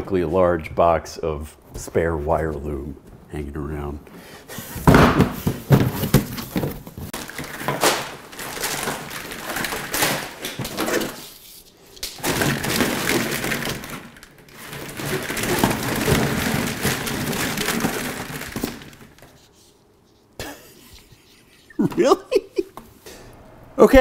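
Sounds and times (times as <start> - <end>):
box knocking on floor: 4.8 - 7.1
plastic wire loom rustling: 6.6 - 19.5.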